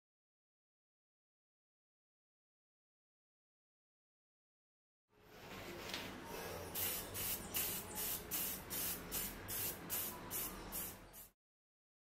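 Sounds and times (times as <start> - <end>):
spray paint can spraying: 6.8 - 11.4.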